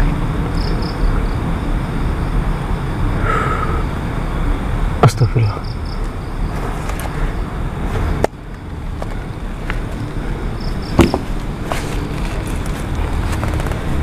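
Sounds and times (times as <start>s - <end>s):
steady low hiss: 0.0s - 14.0s
clicks and rustling handling: 11.0s - 14.0s.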